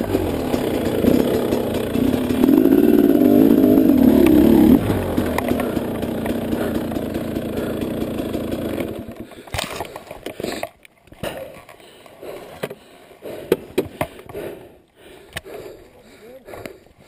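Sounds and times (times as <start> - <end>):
dirt bike engine running: 0.0 - 9.3.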